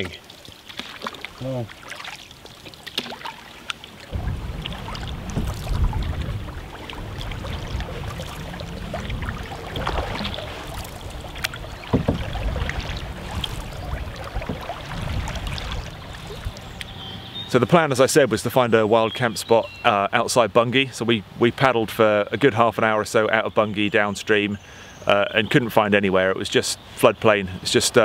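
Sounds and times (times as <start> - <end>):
small splashes and knocks: 0.0 - 17.0
paddles stroking through water: 0.0 - 20.4
low rumble on microphone: 4.1 - 17.5.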